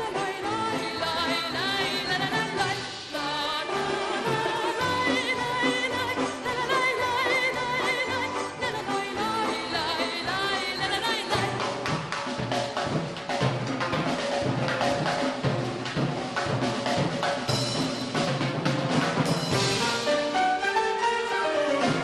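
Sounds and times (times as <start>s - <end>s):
woman singing: 0.0s - 12.0s
timpani and percussion beat: 0.0s - 22.0s
folk orchestra playing: 18.4s - 22.0s.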